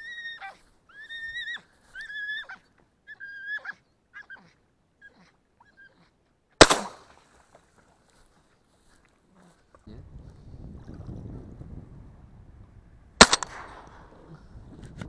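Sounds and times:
shotgun shot: 0:06.6 - 0:07.1, 0:13.2 - 0:14.2.

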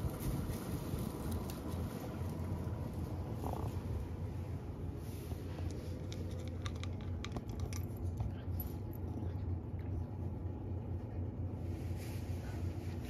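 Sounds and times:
steady low hum: 0:00.0 - 0:13.0
cat crunching dry kibble: 0:05.4 - 0:10.9.

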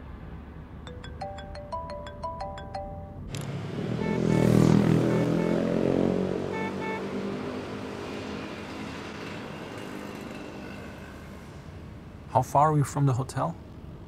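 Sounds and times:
short horn beeps: 0:04.0 - 0:05.8, 0:06.5 - 0:07.1.

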